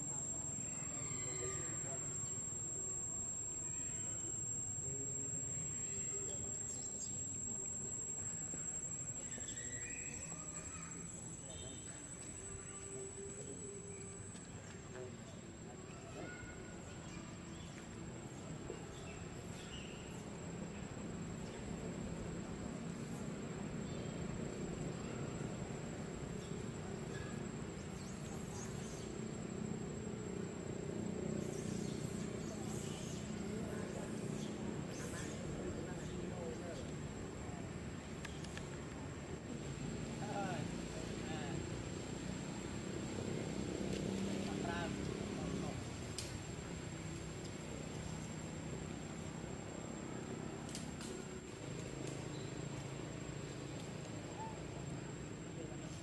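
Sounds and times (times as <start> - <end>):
insects shrilling: 0.0 - 14.4
faint distant voices: 0.0 - 56.0
high-pitched insect trill: 0.0 - 56.0.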